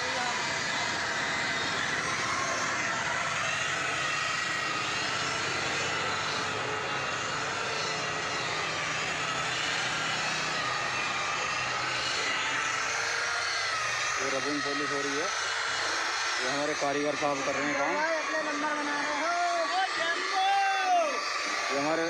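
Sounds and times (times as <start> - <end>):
rotary polisher motor whine: 0.0 - 22.0.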